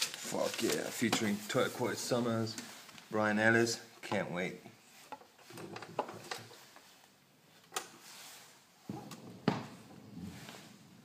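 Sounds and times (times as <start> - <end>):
soft rubbing: 8.0 - 8.9, 9.6 - 11.0.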